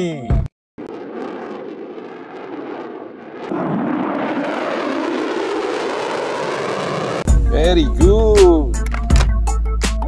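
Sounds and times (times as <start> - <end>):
fighter jet flying past: 0.8 - 7.3.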